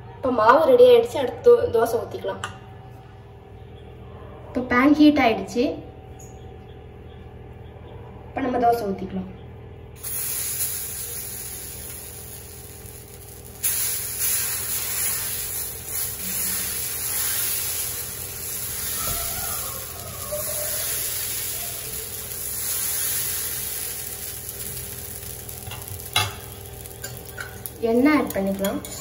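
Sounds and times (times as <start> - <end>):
batter sizzling on hot pan: 10.0 - 29.0.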